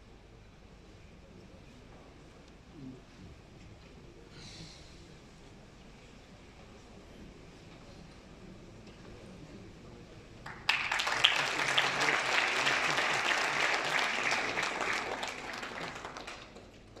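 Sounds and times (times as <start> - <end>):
audience applauding: 10.4 - 17.0.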